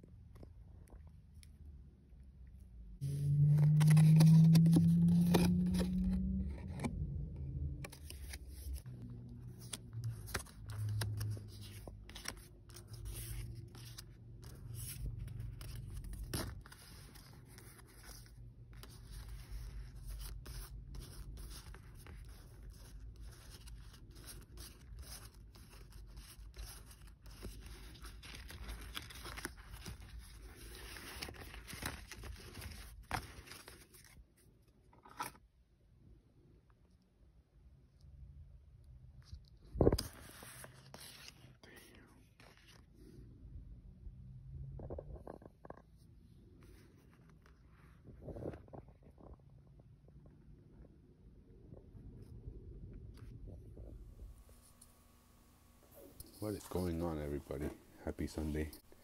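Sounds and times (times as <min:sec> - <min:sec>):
low hum: 0:02.5 - 0:21.8
cards being shuffled: 0:03.2 - 0:34.2, 0:34.9 - 0:35.4.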